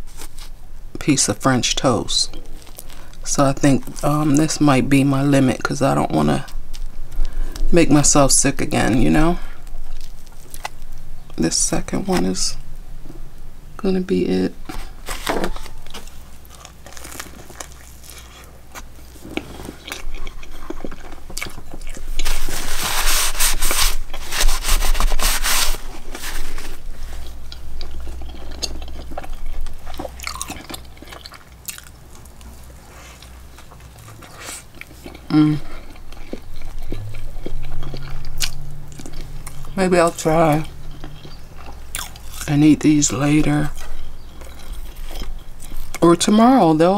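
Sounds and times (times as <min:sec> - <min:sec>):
person chewing food: 0:02.3 - 0:03.2, 0:08.8 - 0:11.4, 0:14.6 - 0:46.0.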